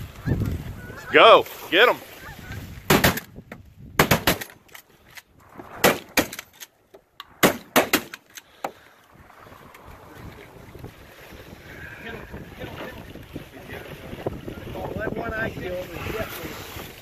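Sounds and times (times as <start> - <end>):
faint wind noise: 0.0 - 17.0
shotguns firing: 2.9 - 3.3, 4.0 - 4.6, 5.8 - 6.4, 7.4 - 8.2.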